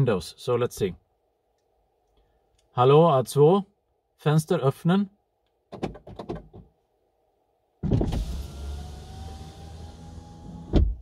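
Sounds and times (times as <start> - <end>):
electric window motor whine: 8.0 - 11.0.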